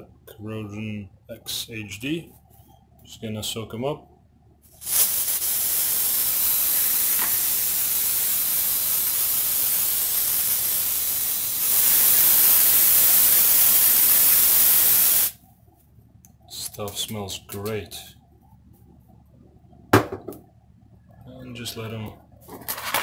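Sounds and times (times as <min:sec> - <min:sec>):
aerosol can spraying hiss: 0:04.7 - 0:15.4.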